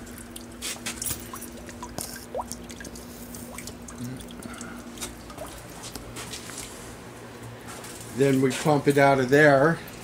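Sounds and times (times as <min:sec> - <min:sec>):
drips plinking into liquid: 0:00.0 - 0:06.1
liquid trickling into bucket: 0:00.0 - 0:06.8
faint steady hum: 0:00.0 - 0:10.0.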